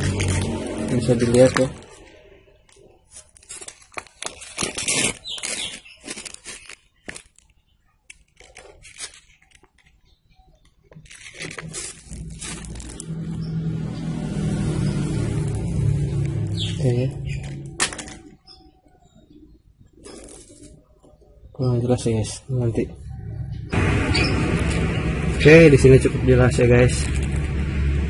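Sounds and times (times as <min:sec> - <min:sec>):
sandpaper rustling and crinkling: 0:03.1 - 0:07.4, 0:11.0 - 0:13.4
steady low drone: 0:22.9 - 0:28.0.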